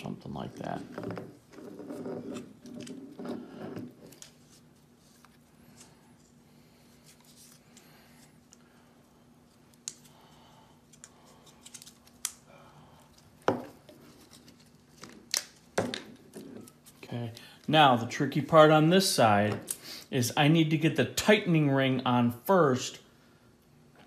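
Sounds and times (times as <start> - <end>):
tape rustling: 10.9 - 12.5.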